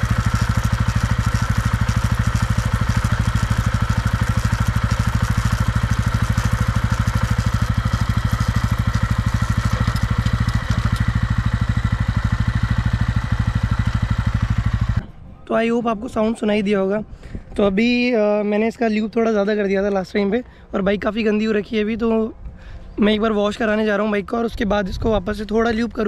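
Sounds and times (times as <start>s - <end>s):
drive chain rattling: 0.0s - 11.4s
motorcycle engine running: 0.0s - 15.2s.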